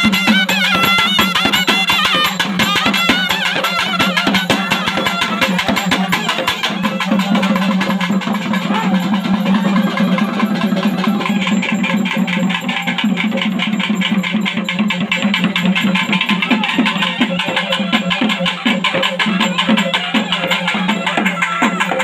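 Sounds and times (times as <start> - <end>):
reed pipe melody: 0.0 - 13.4
fast barrel drumming: 0.0 - 22.0.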